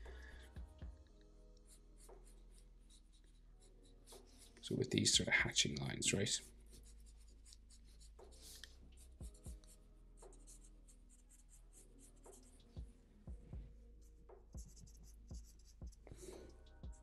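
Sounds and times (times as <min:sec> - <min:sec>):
marker scratching on paper: 0:01.6 - 0:04.8, 0:06.1 - 0:12.8, 0:14.5 - 0:16.5
soft low thumps: 0:12.8 - 0:13.8.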